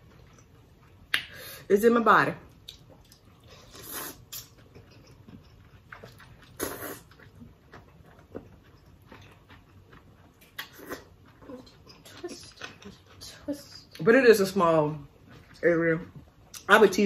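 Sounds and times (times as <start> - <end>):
wet mouth noises: 2.7 - 7.3
noodles being slurped: 6.0 - 7.4.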